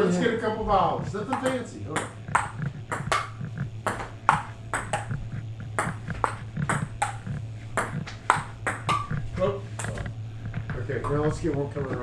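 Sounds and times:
steady low hum: 0.0s - 12.0s
ping pong ball clicking off paddles: 1.3s - 5.2s, 5.8s - 9.2s
ball bouncing on table: 1.3s - 9.2s, 9.8s - 10.1s.

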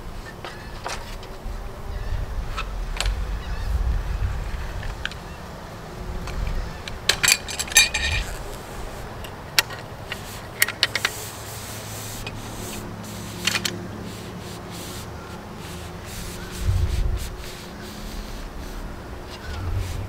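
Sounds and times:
metallic clicks and rubbing: 6.3s - 11.4s.

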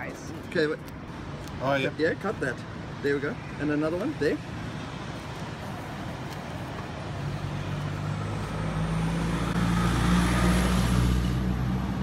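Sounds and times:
vehicle driving past: 7.2s - 12.0s.

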